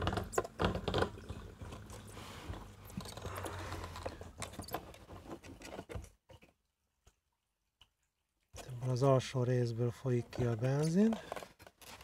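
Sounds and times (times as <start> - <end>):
plastic parts clicking and rustling: 2.5 - 7.2, 10.0 - 12.0.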